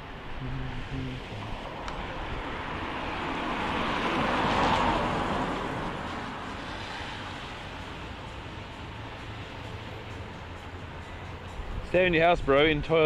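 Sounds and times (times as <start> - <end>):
car tyres hissing on wet road: 3.0 - 9.8.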